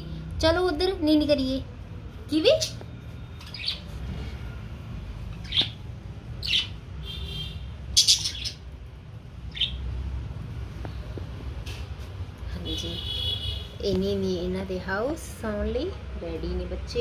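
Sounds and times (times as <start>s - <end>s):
parrots chirping and squawking: 2.4s - 4.4s, 5.2s - 8.8s, 9.4s - 10.0s.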